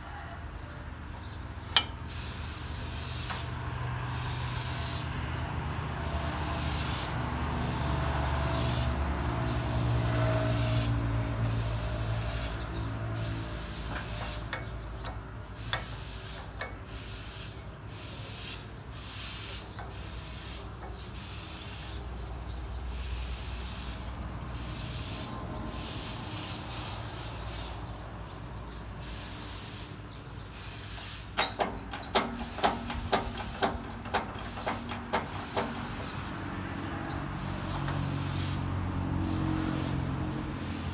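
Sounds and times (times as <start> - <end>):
short hissing bursts: 2.0 - 5.2, 6.0 - 22.2, 22.8 - 28.4, 29.0 - 40.9
sharp metal clicks and taps: 13.9 - 16.0, 16.6 - 16.8, 31.4 - 36.2.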